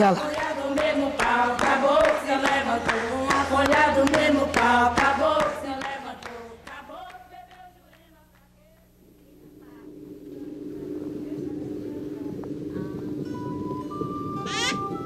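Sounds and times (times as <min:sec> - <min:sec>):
voices singing: 0:00.0 - 0:14.1.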